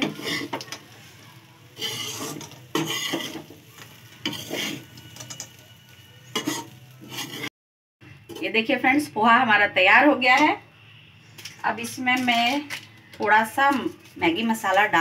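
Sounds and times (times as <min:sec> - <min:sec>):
spatula scraping pan: 0:00.0 - 0:01.1, 0:01.7 - 0:07.5.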